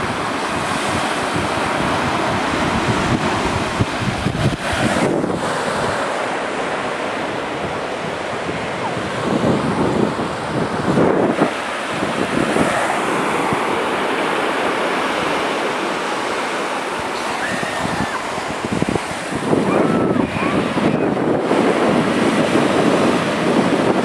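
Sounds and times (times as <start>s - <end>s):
surf breaking on a beach: 0.0s - 24.0s
wind buffeting the microphone: 0.0s - 24.0s.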